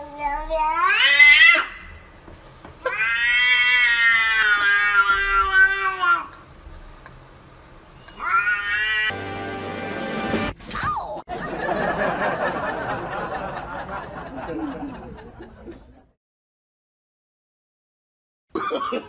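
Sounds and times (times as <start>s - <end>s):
cat yowling: 0.6s - 1.8s, 2.8s - 6.3s, 8.0s - 9.2s.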